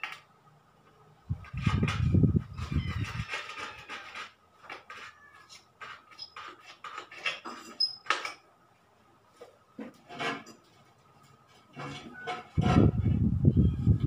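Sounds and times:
sealant scraped off glass: 1.4s - 8.4s.

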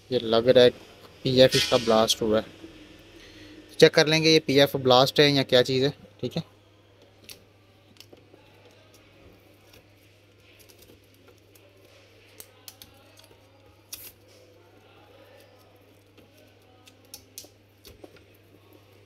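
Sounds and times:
tape crinkling and scratching: 7.2s - 19.0s.

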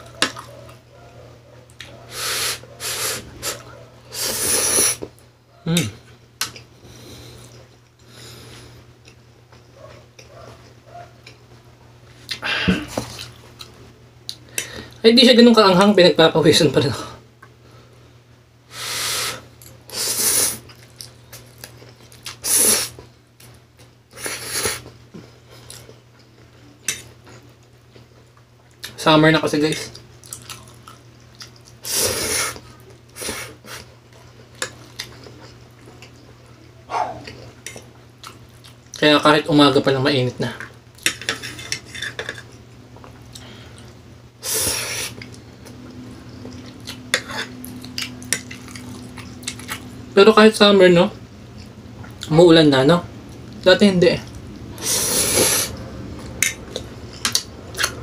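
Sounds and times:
person chewing noodles: 0.0s - 0.8s, 1.7s - 11.4s, 12.2s - 15.0s, 19.2s - 29.0s, 29.8s - 39.0s, 40.6s - 50.0s, 54.3s - 58.0s
fork scraping a plate: 41.0s - 42.5s, 47.1s - 47.6s.

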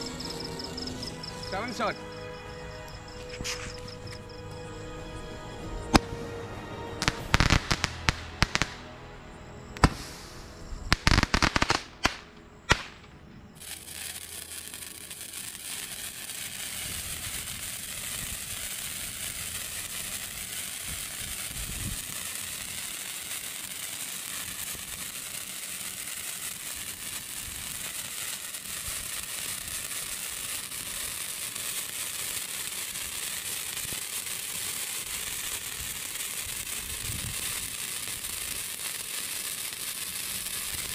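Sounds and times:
sparkler crackling hiss: 1.5s - 1.9s, 7.0s - 8.7s, 9.8s - 13.0s, 13.6s - 40.9s
firework bangs: 7.0s - 8.8s, 9.8s - 40.9s.

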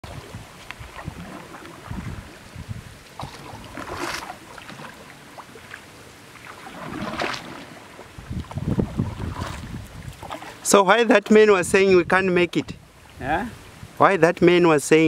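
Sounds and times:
water splashing against canoe hull: 0.0s - 10.7s.

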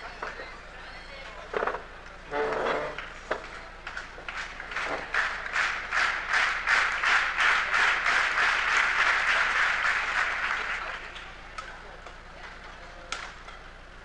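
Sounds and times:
crowd noise: 0.0s - 14.0s
spectators clapping in time: 3.8s - 12.2s.

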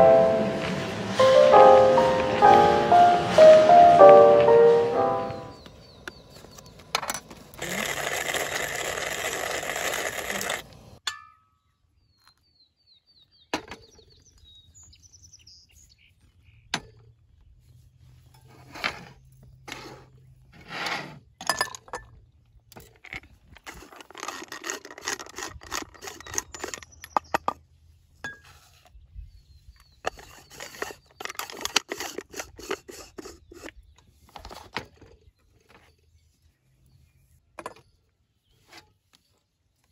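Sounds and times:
gritty rattling and scraping: 5.4s - 11.0s, 16.6s - 29.0s, 29.6s - 39.4s
coffee beans rattling into grinder: 7.6s - 10.9s, 23.1s - 27.0s, 30.1s - 33.7s.

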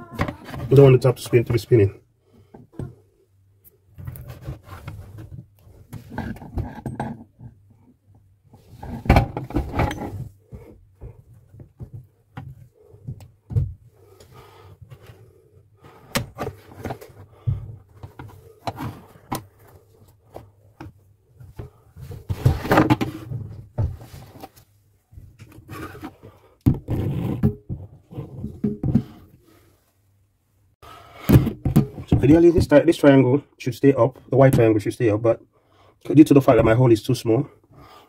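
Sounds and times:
knocks and scrapes on plastic fittings: 4.0s - 7.6s, 31.2s - 32.7s.

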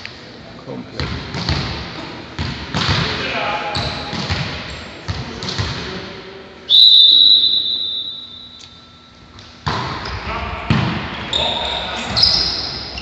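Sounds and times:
volleyball bouncing on floor: 1.0s - 1.8s, 3.8s - 5.8s
referee whistle blast: 6.7s - 8.6s.

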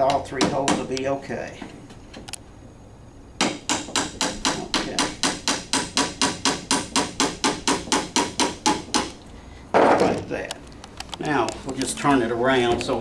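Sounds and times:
hammer tapping on wooden pin: 0.0s - 1.1s, 3.4s - 9.2s.

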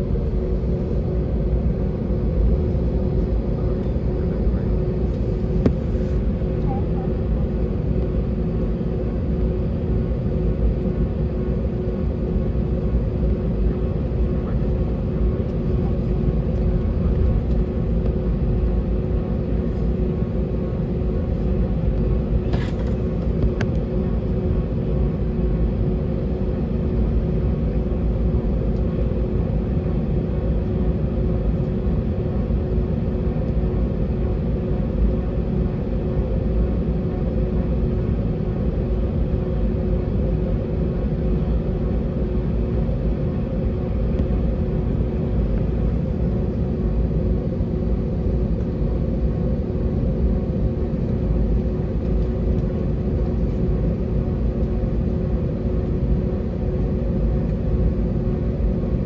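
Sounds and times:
constant tone: 0.0s - 25.8s
jet engine rumble: 0.0s - 59.0s.

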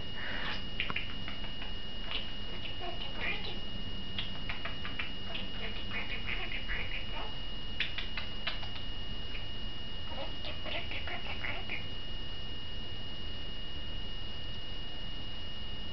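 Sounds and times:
budgie chattering and chirping: 0.2s - 3.6s, 4.2s - 8.9s, 10.1s - 11.9s
sharp clicks: 7.8s - 9.4s.

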